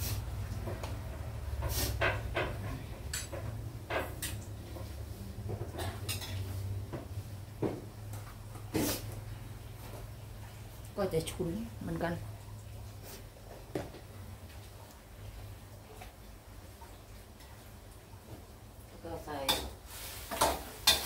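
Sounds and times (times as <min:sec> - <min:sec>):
cookware and utensils clinking: 0:00.7 - 0:07.0, 0:19.3 - 0:21.0.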